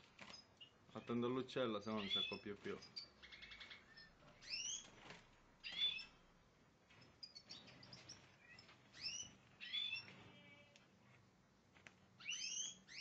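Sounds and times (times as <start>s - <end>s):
goldfinches chirping: 1.9s - 4.9s, 5.6s - 6.2s, 7.2s - 10.1s, 12.2s - 13.0s.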